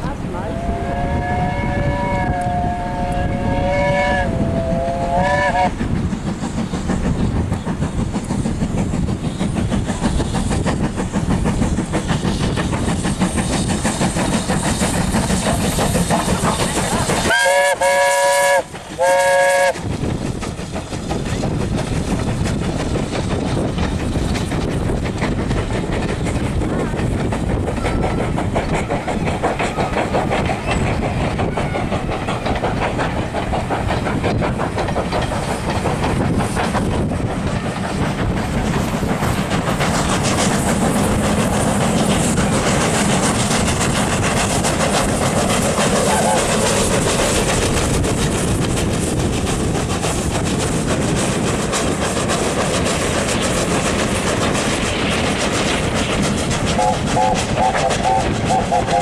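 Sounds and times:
train wheels clickety-clack: 0.0s - 59.0s
steam whistle blasts: 0.4s - 5.7s, 17.3s - 19.8s.

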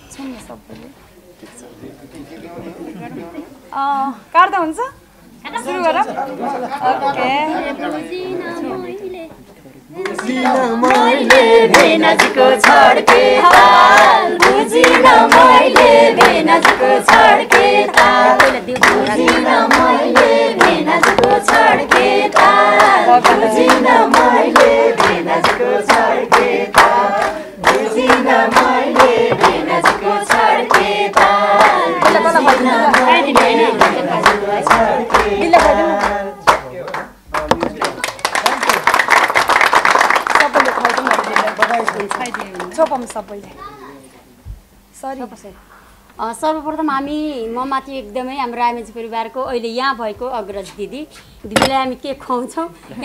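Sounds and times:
group of people singing: 9.9s - 36.7s
hands clapping in a beat: 10.0s - 43.4s.

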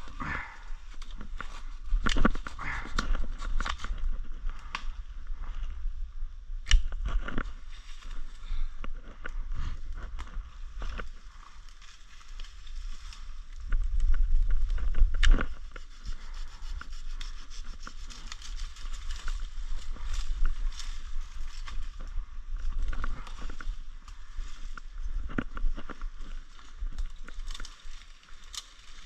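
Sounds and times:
twigs crackling: 0.0s - 5.8s, 6.6s - 29.0s
leaves and branches rustling: 0.0s - 29.0s
low wind rumble on microphone: 0.0s - 29.0s
stick snapping: 6.6s - 7.0s.

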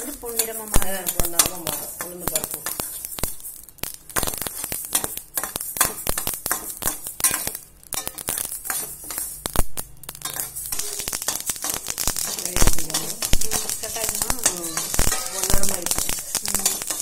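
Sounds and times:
seeds rattling in a pan: 0.0s - 17.0s
spoon scraping steel pan: 4.4s - 9.4s, 10.2s - 17.0s.

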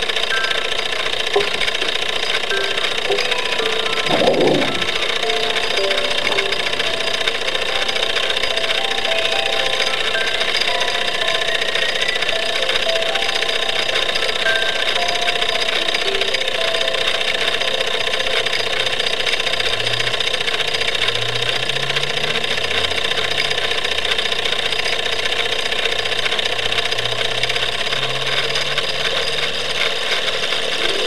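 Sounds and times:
organ sustained low notes: 0.0s - 23.8s
toy steam engine whirring and hissing: 0.0s - 31.0s.

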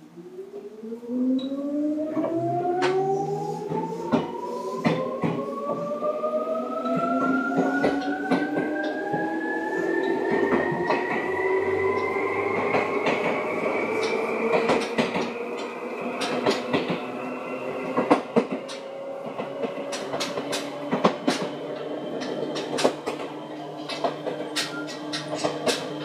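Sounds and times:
wheel clicks over rail joints: 19.4s - 26.0s.

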